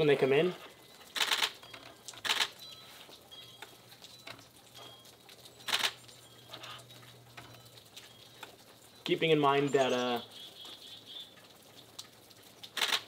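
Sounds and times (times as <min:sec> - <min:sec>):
camera shutter clicks: 0:01.2 - 0:01.6, 0:02.2 - 0:02.5, 0:05.7 - 0:06.0, 0:12.8 - 0:13.0.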